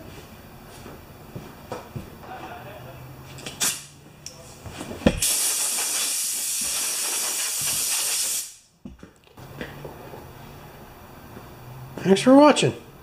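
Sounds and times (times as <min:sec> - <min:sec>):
compressed air blow gun hissing: 0:05.2 - 0:08.6.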